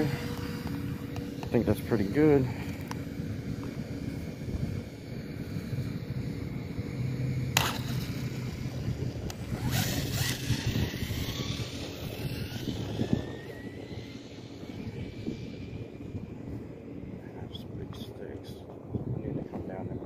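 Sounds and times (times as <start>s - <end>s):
toy car electric motor whining: 0.0s - 16.0s
wind on microphone: 0.0s - 20.0s.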